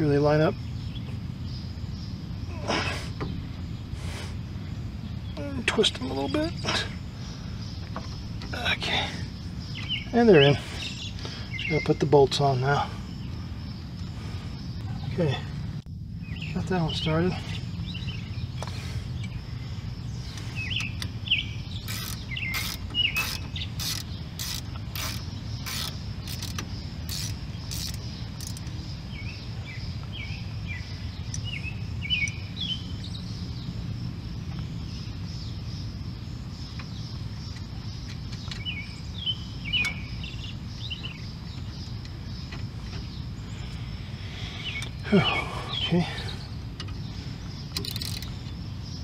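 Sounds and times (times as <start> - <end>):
birds chirping: 0.0 - 49.0
ratchet wrench clicking: 21.8 - 28.7, 47.7 - 48.4.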